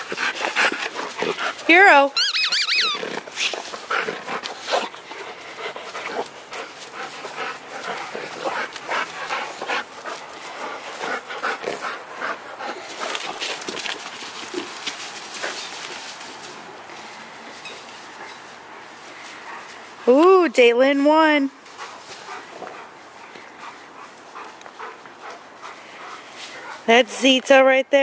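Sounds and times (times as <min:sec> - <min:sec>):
dog panting: 0:00.0 - 0:16.6, 0:21.7 - 0:27.0.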